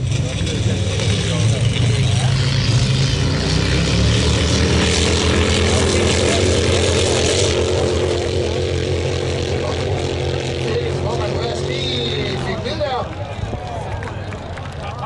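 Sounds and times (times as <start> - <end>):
engine droning: 0.0 - 15.0.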